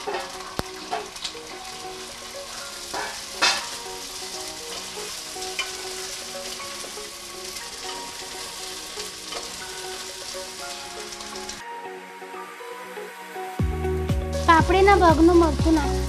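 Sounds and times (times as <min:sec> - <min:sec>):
beans sizzling in hot oil: 0:00.0 - 0:16.0.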